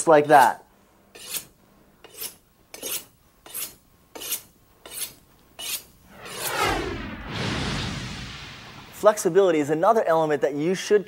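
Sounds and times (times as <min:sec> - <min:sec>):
knife scraping on sharpening steel: 0:01.1 - 0:05.9
rising whoosh: 0:06.0 - 0:09.1.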